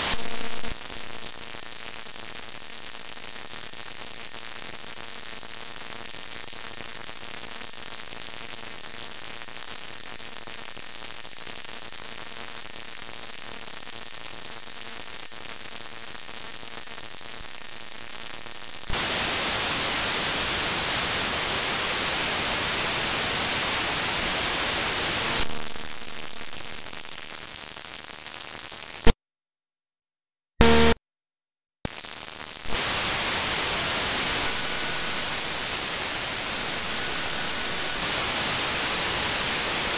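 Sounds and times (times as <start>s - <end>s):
radio static hiss: 0.0s - 1.2s, 17.4s - 28.0s, 30.6s - 31.0s, 31.9s - 39.9s
brief tone: 30.6s - 31.0s.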